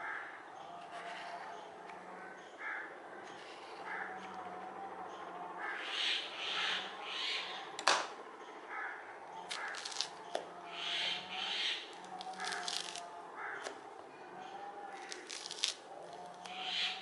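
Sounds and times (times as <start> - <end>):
crow cawing: 0.0 - 0.4, 2.2 - 4.3, 5.6 - 7.6, 8.7 - 10.0, 10.7 - 13.8
orange peel tearing: 9.5 - 10.2, 11.9 - 13.8, 14.9 - 16.6.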